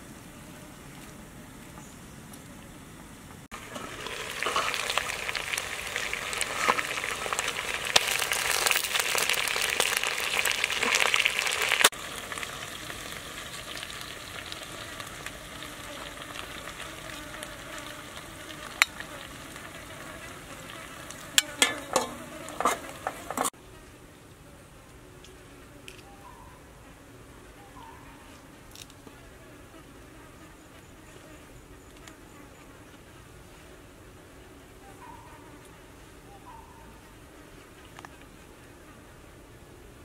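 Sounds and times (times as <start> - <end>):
food sizzling and crackling: 3.5 - 23.6.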